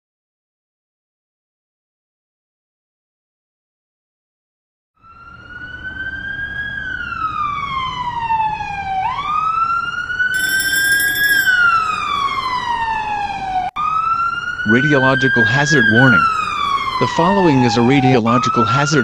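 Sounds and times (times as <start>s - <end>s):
wailing siren: 5.0s - 19.0s.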